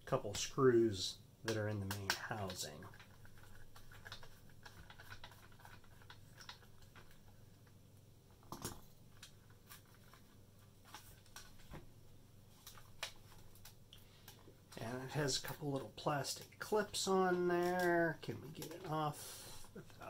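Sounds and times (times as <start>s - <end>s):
plastic parts clicking and knocking: 1.5s - 7.2s, 8.4s - 9.4s.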